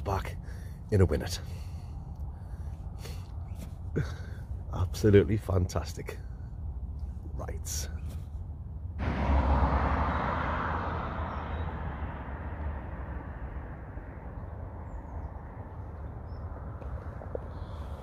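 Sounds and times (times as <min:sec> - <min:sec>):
road traffic rumbling: 0:00.0 - 0:18.0
rushing noise: 0:09.0 - 0:15.9.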